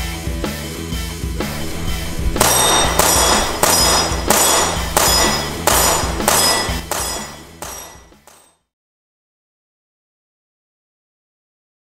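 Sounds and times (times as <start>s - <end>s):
low bass line: 1.4s - 7.4s
heavy metallic percussive hits: 1.4s - 8.5s.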